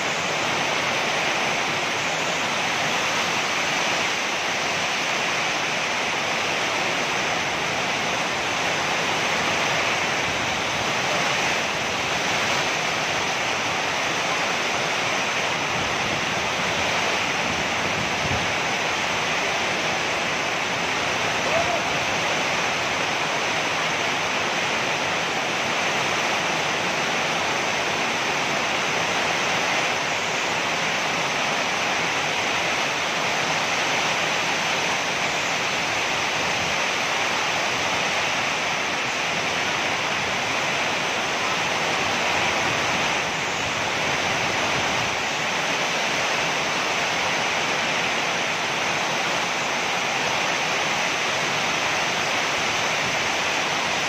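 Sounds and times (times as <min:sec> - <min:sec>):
heavy rain pouring: 0:00.0 - 0:54.0.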